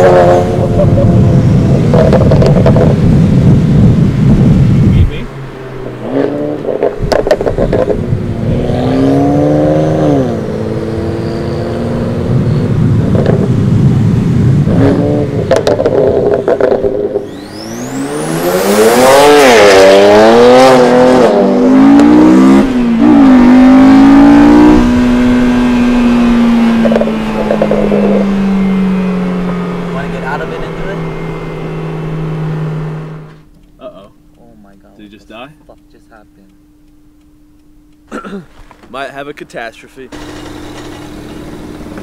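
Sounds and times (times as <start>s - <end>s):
car engine revving hard: 0.0s - 33.4s
sharp exhaust cracks: 1.6s - 42.0s
high turbo whistle: 17.2s - 19.8s.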